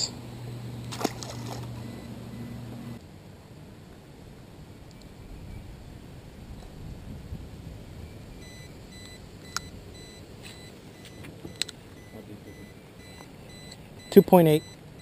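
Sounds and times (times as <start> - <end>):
faint wind and water: 0.0 - 15.0
faint high electronic beep: 8.0 - 15.0.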